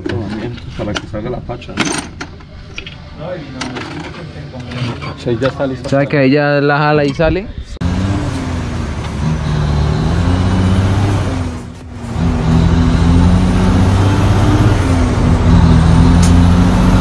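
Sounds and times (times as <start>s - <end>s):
heavy truck engine running: 7.8s - 17.0s.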